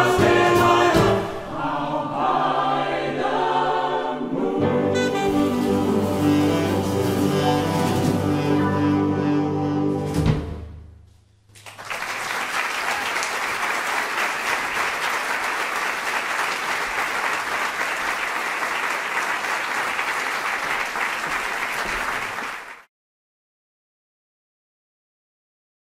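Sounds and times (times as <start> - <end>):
audience applauding: 11.5 - 22.9.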